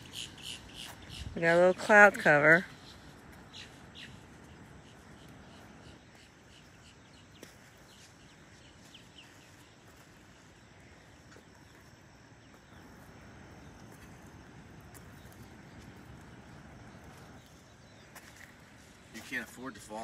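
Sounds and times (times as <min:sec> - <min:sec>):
bird chirps: 0:00.0 - 0:01.9, 0:02.6 - 0:10.0.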